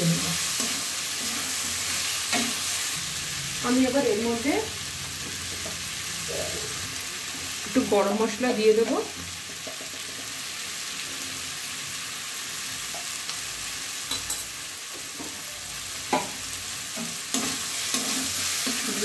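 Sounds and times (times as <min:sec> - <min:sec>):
curry sizzling in a pan: 0:00.0 - 0:19.0
metal spatula scraping a pan: 0:16.9 - 0:19.0.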